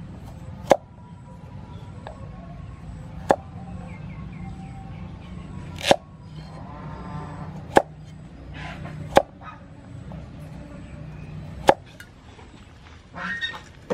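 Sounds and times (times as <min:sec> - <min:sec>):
cleaver chopping carrot on wood: 0:00.6 - 0:00.8, 0:03.2 - 0:03.4, 0:05.8 - 0:06.0, 0:07.6 - 0:08.0, 0:09.1 - 0:09.4, 0:11.6 - 0:12.0.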